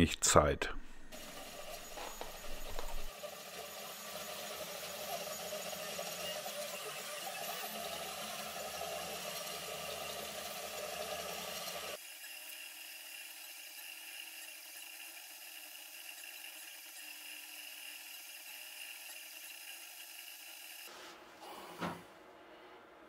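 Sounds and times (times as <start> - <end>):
three d printer whirring: 1.2 - 12.0.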